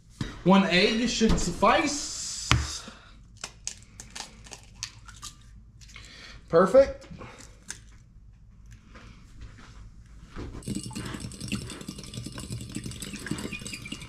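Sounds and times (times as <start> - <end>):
fork beating egg in bowl: 10.6 - 14.0.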